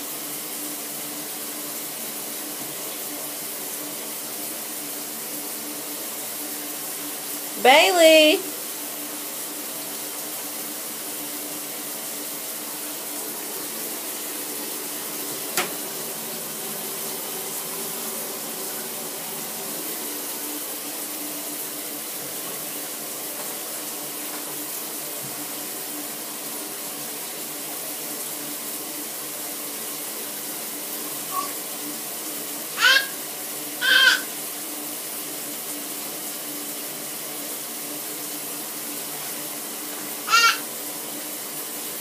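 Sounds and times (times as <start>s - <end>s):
shower water spray hissing: 0.0s - 42.0s.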